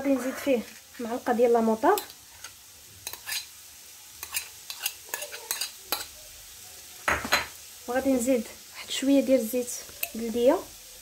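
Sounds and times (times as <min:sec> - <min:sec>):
metal spoon scraping bowls: 0:00.1 - 0:00.8, 0:02.0 - 0:03.5, 0:04.2 - 0:06.1.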